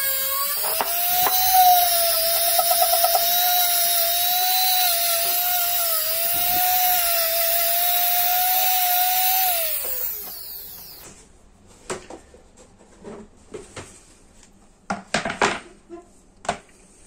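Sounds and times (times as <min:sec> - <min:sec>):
rotary wire brush whining: 0:00.0 - 0:11.0.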